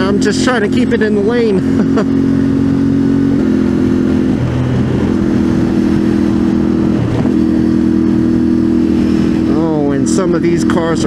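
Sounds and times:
motorcycle engine cruising: 0:00.0 - 0:11.0
wind rushing over microphone: 0:02.2 - 0:11.0.

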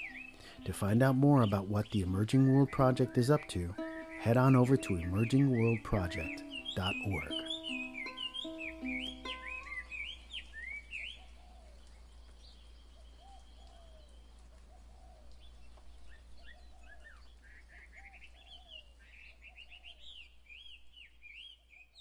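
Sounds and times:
lower arched bird calls: 0:00.0 - 0:12.3
birds chirping: 0:00.0 - 0:22.0.

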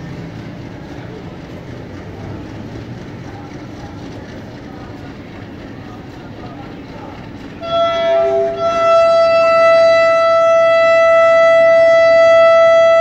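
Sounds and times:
locomotive air horn blast: 0:07.6 - 0:13.0.

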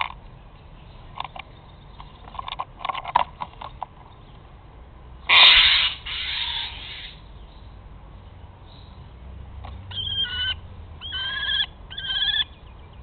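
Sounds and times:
harsh bird screech: 0:05.3 - 0:07.2
quieter harsh bird call: 0:05.3 - 0:07.3, 0:09.9 - 0:12.8.

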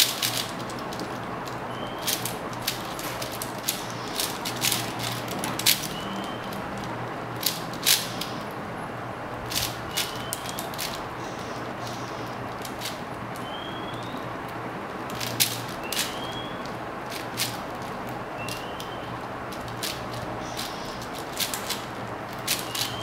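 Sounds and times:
puzzle cube plastic clicks: 0:00.0 - 0:08.4, 0:09.5 - 0:11.0, 0:15.1 - 0:18.9, 0:19.5 - 0:23.0.

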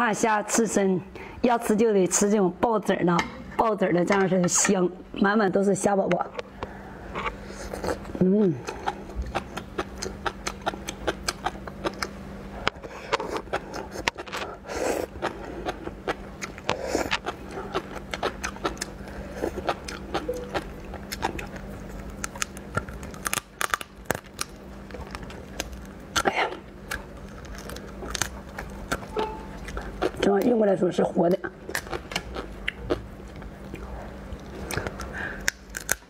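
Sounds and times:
faint steady hum: 0:00.0 - 0:36.0
chewing and wet mouth sounds: 0:07.1 - 0:30.5, 0:31.4 - 0:36.0.

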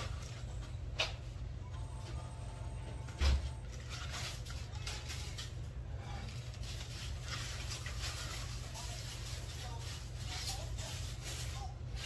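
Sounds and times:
steady low hum: 0:00.0 - 0:12.0
crunching and rustling of chips: 0:03.6 - 0:12.0.

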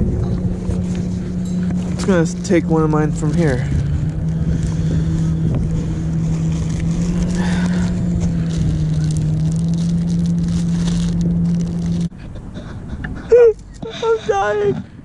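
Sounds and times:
engine drone: 0:00.0 - 0:15.0
wind rumble on microphone: 0:00.0 - 0:15.0
plastic bag crinkling: 0:06.2 - 0:12.1.

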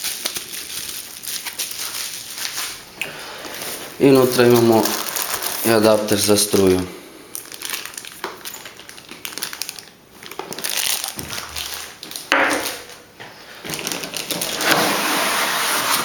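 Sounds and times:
plastic wrap crinkling: 0:00.0 - 0:16.0
cardboard rustling: 0:03.5 - 0:06.7.

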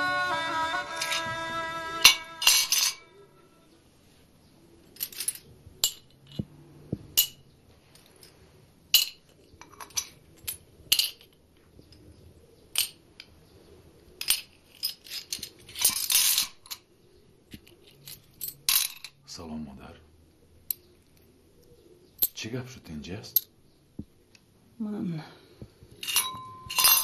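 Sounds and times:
small hard objects clinking: 0:02.0 - 0:03.0, 0:14.2 - 0:16.8, 0:26.0 - 0:27.0.

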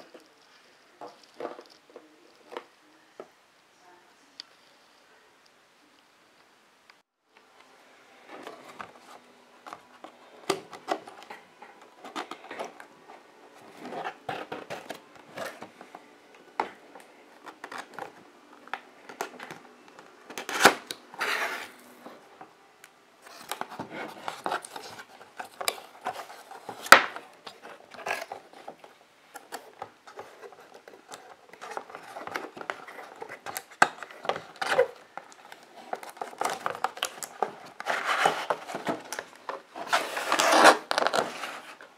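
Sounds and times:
cardboard scraping and rubbing: 0:35.6 - 0:41.8.

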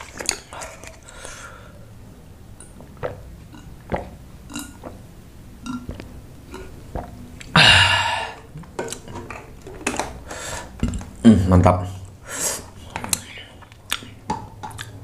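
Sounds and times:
person gulping a drink: 0:05.6 - 0:09.1
loud throaty exhale: 0:07.6 - 0:08.4.

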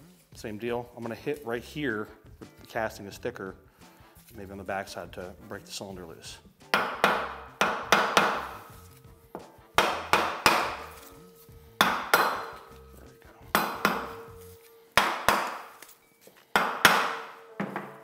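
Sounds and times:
mallet knocking on metal: 0:09.8 - 0:10.9, 0:11.8 - 0:12.6, 0:13.5 - 0:14.4.

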